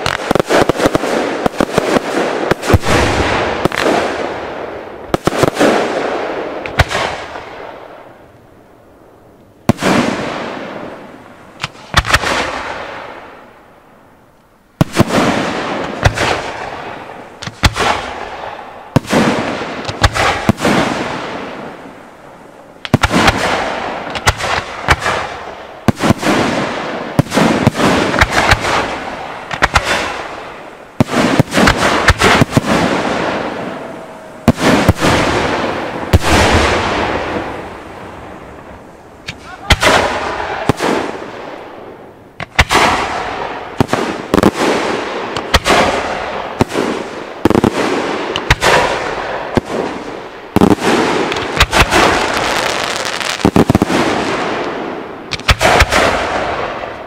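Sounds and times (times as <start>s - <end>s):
firework shells bursting: 27.2s - 41.7s, 42.4s - 56.9s.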